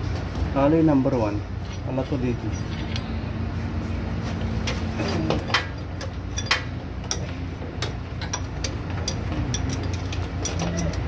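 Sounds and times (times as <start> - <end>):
hand tools clinking on metal: 5.0 - 11.0.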